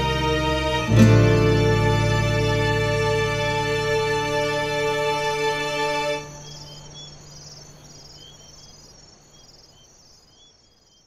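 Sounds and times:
background music chord: 0.0 - 7.4
crickets chirping: 0.0 - 11.0.

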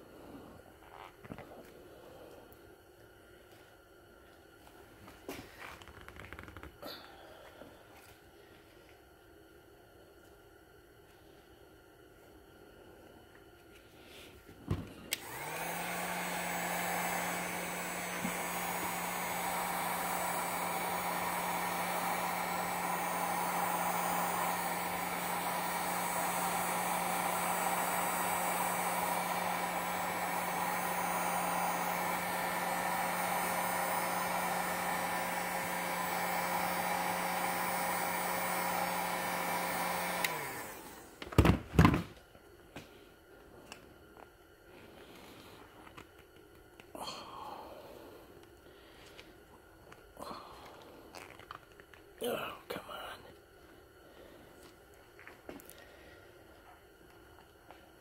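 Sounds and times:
heat gun blowing air: 15.0 - 41.3.

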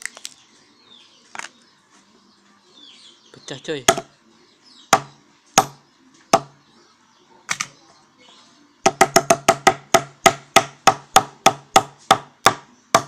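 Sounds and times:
hammer knocking on glass: 4.9 - 5.8, 8.8 - 13.0.

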